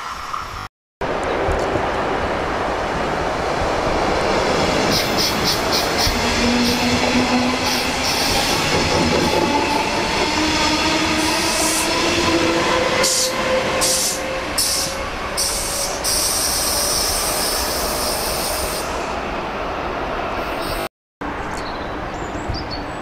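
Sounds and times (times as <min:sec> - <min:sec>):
electric locomotive whine: 0:00.1 - 0:19.3
train wheels rumbling on rail: 0:01.0 - 0:19.4.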